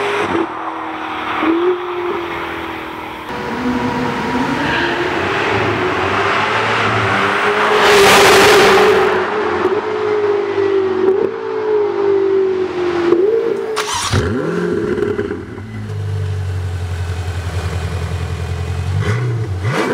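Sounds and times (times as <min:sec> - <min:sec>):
sports car engine passing by: 0:00.0 - 0:19.9
gear change: 0:13.1 - 0:16.7.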